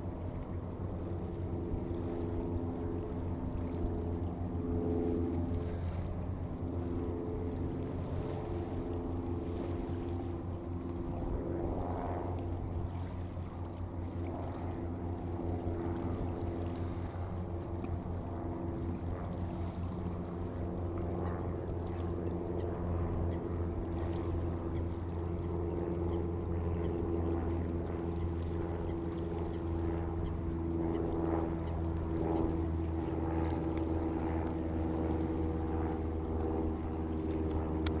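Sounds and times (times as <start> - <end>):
engine droning: 0.0 - 38.0.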